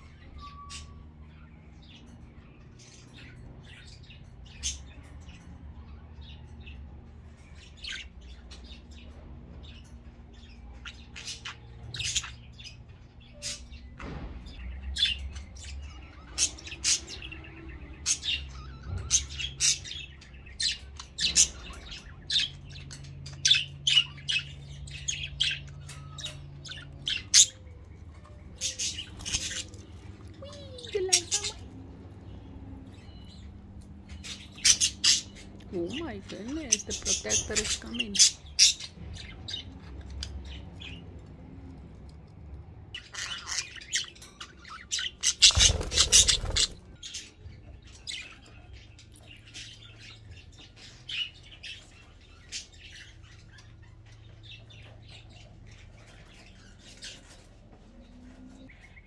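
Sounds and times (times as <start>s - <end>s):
low steady hum: 0.0s - 59.0s
budgerigars chirping: 9.8s - 13.8s, 14.5s - 41.3s, 42.9s - 59.0s.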